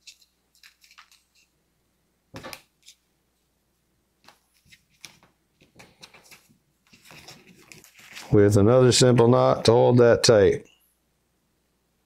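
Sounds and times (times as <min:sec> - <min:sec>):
sausage casing rustling: 0:00.0 - 0:01.6, 0:04.2 - 0:08.4.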